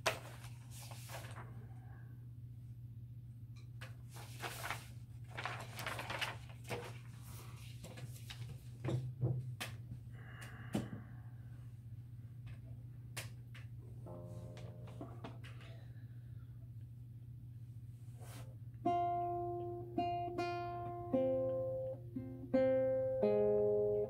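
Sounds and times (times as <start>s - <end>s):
paper rustling: 0.0s - 1.6s, 3.8s - 8.8s.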